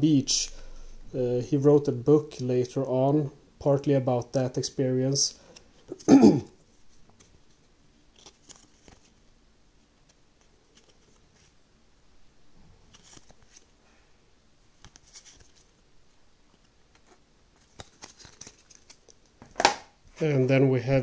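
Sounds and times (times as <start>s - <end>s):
cards being slid and sorted: 10.7s - 11.6s, 12.9s - 13.7s, 14.8s - 15.7s, 16.5s - 19.0s.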